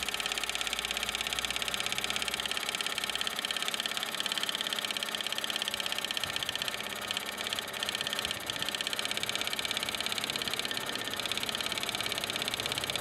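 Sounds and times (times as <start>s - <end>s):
model engine whirring clatter: 0.0s - 13.0s.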